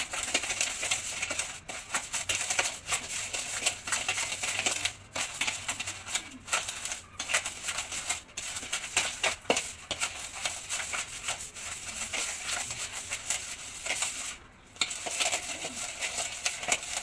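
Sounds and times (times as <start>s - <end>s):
spoon beating butter in bowl: 0.0s - 17.0s.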